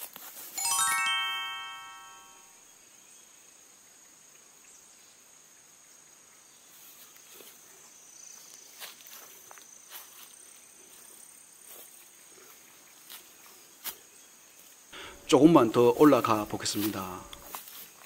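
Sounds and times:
insects droning: 0:05.5 - 0:18.0
footsteps through tall grass: 0:08.7 - 0:12.2, 0:16.1 - 0:18.0.

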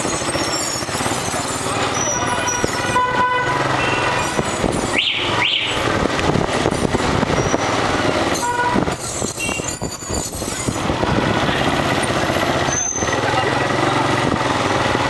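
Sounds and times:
short rising squeaks: 0:00.0 - 0:02.8, 0:07.3 - 0:07.7, 0:08.9 - 0:10.8, 0:12.6 - 0:13.2
motorbike engine: 0:00.0 - 0:15.0
wind noise: 0:03.9 - 0:11.9.

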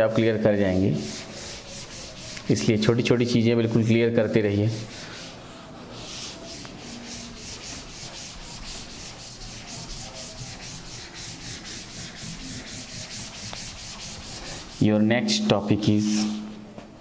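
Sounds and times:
duster rubbing on blackboard: 0:00.7 - 0:03.1, 0:04.5 - 0:15.1, 0:16.0 - 0:16.6.

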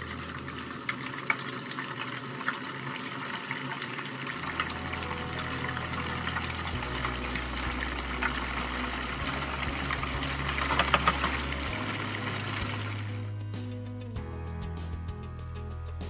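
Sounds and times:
oil crackling as food dropped: 0:00.0 - 0:05.0, 0:05.7 - 0:13.1
deep-frying sizzle and crackle: 0:00.0 - 0:13.4.

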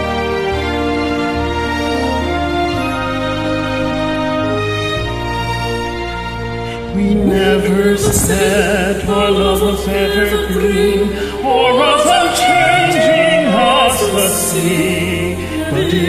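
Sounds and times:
karaoke backing track: 0:06.8 - 0:16.0
man and woman singing duet: 0:06.8 - 0:16.0.

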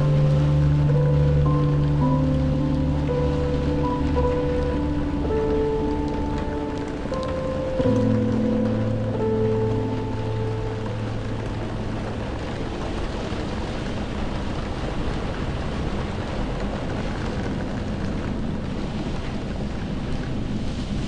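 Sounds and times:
held music notes: 0:00.0 - 0:12.8
rain: 0:00.0 - 0:21.0
wind: 0:00.0 - 0:21.0.

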